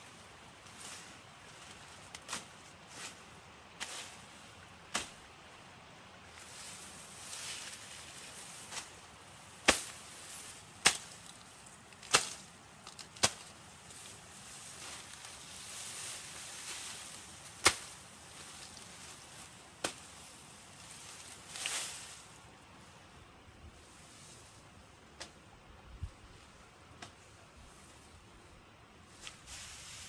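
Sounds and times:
grass stalks rustling: 0:00.0 - 0:30.0
machete chopping grass stalks: 0:02.1 - 0:03.2, 0:04.9 - 0:05.2, 0:09.6 - 0:11.4, 0:12.0 - 0:14.1, 0:14.7 - 0:20.3, 0:20.9 - 0:22.2.

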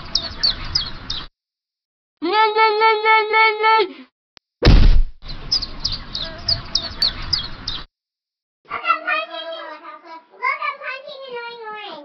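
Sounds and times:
cartoon birds tweeting: 0:00.0 - 0:01.3, 0:05.2 - 0:07.9.

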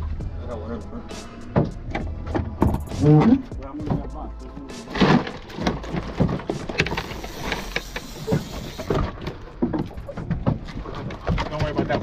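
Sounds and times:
steady low rumble: 0:00.0 - 0:04.8.

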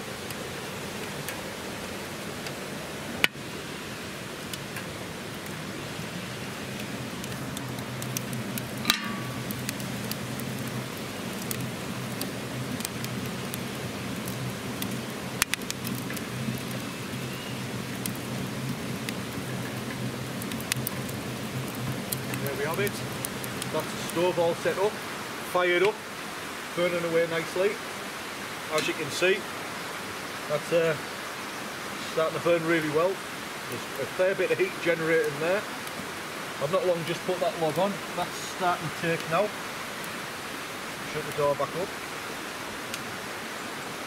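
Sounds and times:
wood fire crackling and popping: 0:00.0 - 0:43.5.

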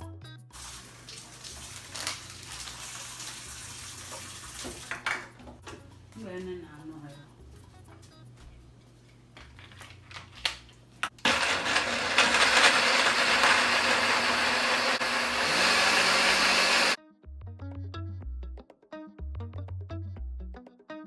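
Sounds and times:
blender motor whirring: 0:11.2 - 0:17.0.

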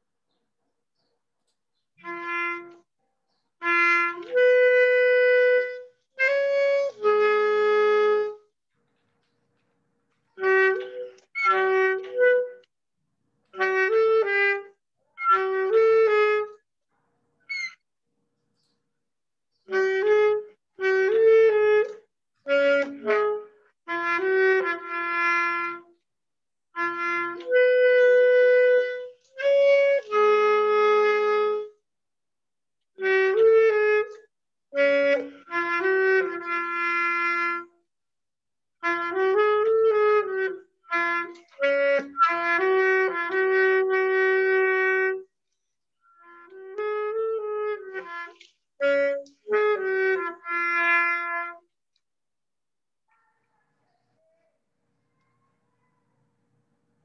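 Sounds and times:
alto saxophone playing held notes: 0:02.0 - 0:02.9, 0:03.6 - 0:08.5, 0:10.3 - 0:12.7, 0:13.6 - 0:16.6, 0:19.7 - 0:26.0, 0:26.7 - 0:31.8, 0:33.0 - 0:37.8, 0:38.8 - 0:45.3, 0:46.2 - 0:51.7.

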